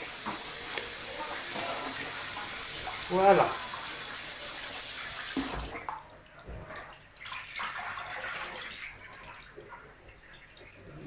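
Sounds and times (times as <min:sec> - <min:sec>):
tap running into sieve: 0:00.0 - 0:02.5, 0:05.3 - 0:06.7
water draining and dripping: 0:00.0 - 0:11.0.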